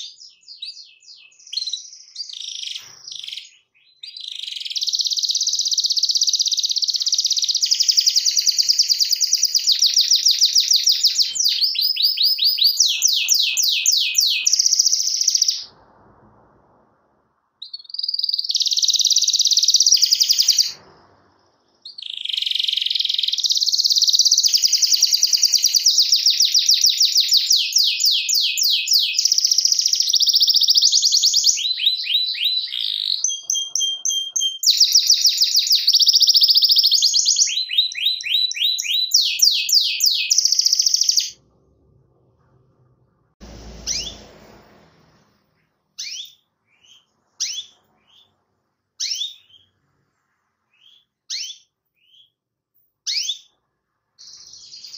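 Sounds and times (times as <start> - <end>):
canary singing trills: 0.0 - 15.8, 17.6 - 20.8, 21.6 - 41.4, 43.4 - 44.3, 46.0 - 52.4, 53.0 - 53.6
short bird chirps: 0.0 - 15.8, 17.6 - 41.4, 43.4 - 52.4
short noise: 41.4 - 46.0.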